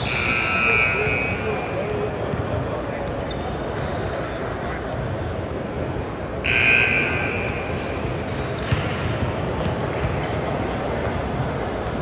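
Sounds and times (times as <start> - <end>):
scoreboard buzzer: 0.0 - 1.7, 6.4 - 7.7
basketball bouncing on hardwood floor: 7.7 - 10.4.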